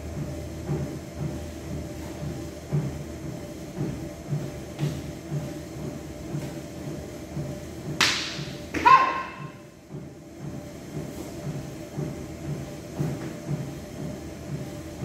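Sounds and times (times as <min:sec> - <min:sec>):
person shouting: 0:08.8 - 0:09.5.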